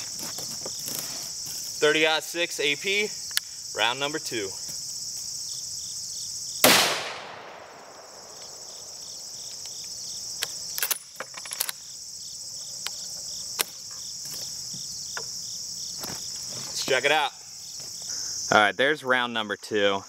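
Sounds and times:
insects chirring: 0:00.0 - 0:20.0
rifle shot: 0:06.6 - 0:09.0.

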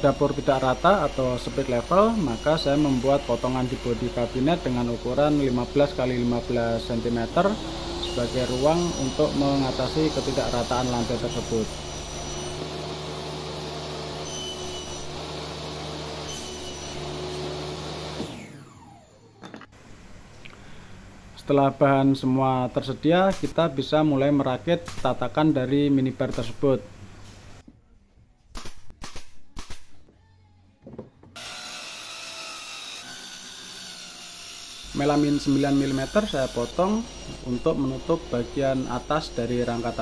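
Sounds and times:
table saw cutting wood: 0:00.0 - 0:19.4, 0:31.4 - 0:40.0
nail gun firing: 0:28.5 - 0:29.9.

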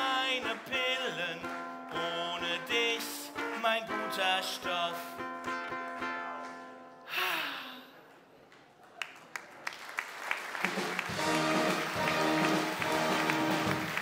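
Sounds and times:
music: 0:00.0 - 0:07.1, 0:10.6 - 0:14.0
audience applause: 0:08.0 - 0:14.0.

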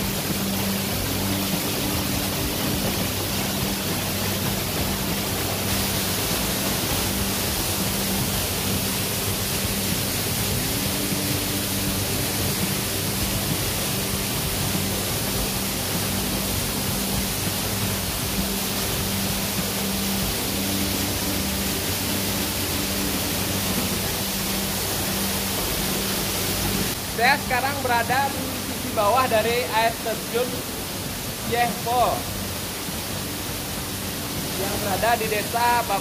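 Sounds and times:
waterfall rushing: 0:00.0 - 0:36.0.

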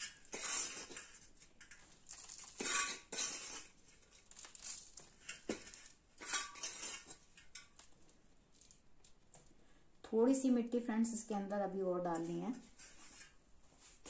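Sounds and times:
hand scooping soil in metal bowl: 0:00.0 - 0:07.6.

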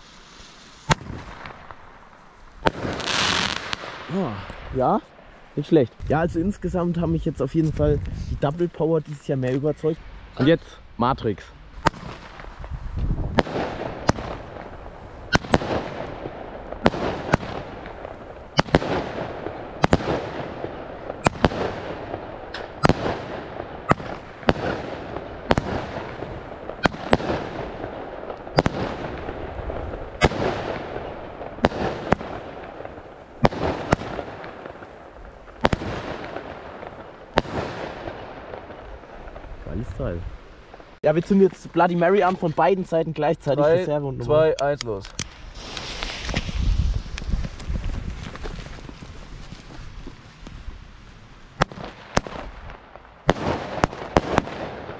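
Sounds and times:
fireworks bangs with echo: 0:00.8 - 0:01.9, 0:02.6 - 0:05.2, 0:11.8 - 0:41.5, 0:51.6 - 0:54.9.

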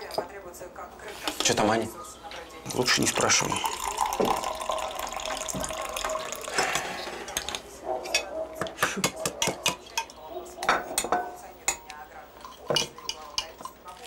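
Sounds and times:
crockery and cutlery clinking: 0:02.7 - 0:14.0.

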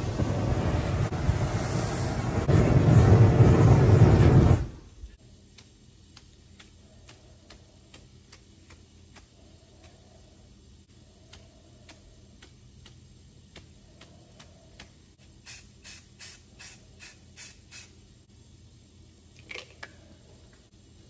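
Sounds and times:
faint steady ticking: 0:05.2 - 0:15.2
spray paint can hissing bursts: 0:14.8 - 0:18.1.

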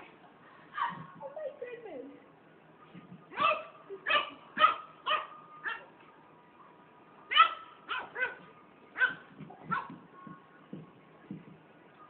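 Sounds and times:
puppy yipping barks: 0:03.3 - 0:05.9, 0:07.3 - 0:10.0.

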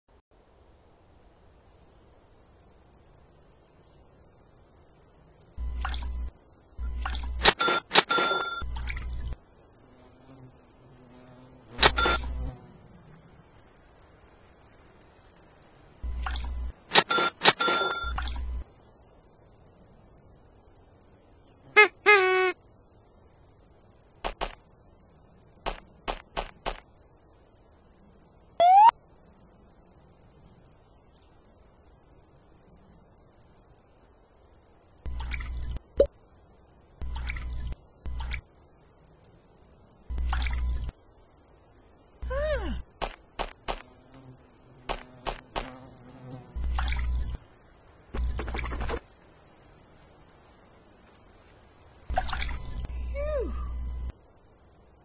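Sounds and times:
crickets chirping: 0:00.4 - 0:55.0
girl's excited voice: 0:42.3 - 0:42.8, 0:53.2 - 0:53.6.

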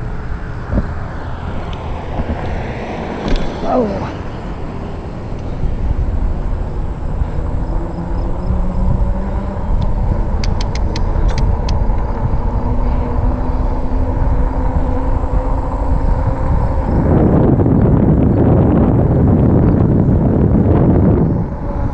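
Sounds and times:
tyre noise on pavement: 0:00.0 - 0:13.3
wind rumble on microphone: 0:00.0 - 0:21.9
quick clicks: 0:10.4 - 0:11.8.

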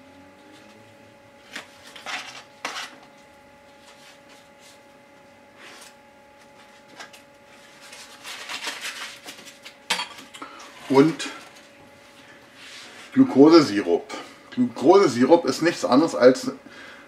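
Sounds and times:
faint steady hum: 0:00.0 - 0:17.0
foil rustling: 0:06.6 - 0:09.8.

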